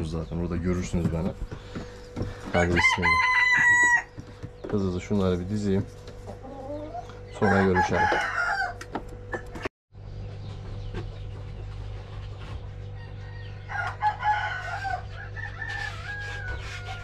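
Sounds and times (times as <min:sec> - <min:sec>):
steady low hum: 0:00.0 - 0:17.0
rooster crowing: 0:02.5 - 0:04.1, 0:07.4 - 0:08.8, 0:13.0 - 0:17.0.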